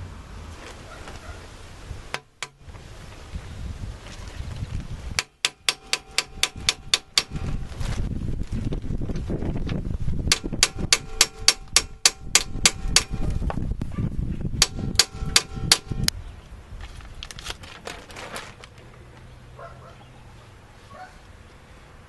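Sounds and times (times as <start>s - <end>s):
hammer striking metal: 2.1s - 2.6s, 5.2s - 7.5s, 10.3s - 13.3s, 14.6s - 16.1s.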